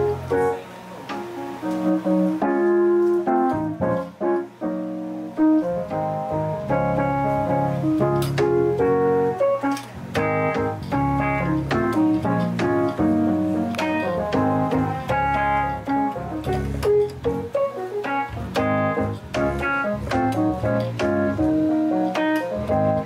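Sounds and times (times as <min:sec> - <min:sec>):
electronic keyboard piano chords: 0:00.0 - 0:23.0.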